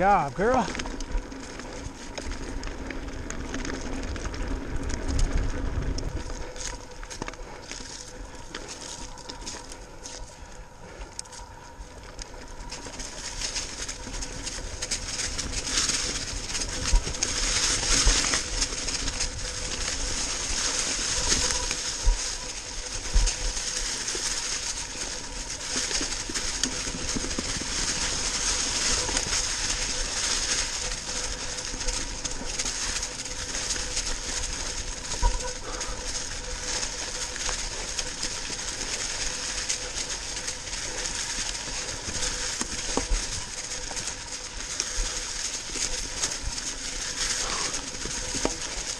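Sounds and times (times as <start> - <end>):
bike tyres crunching leaves: 0.0 - 48.9.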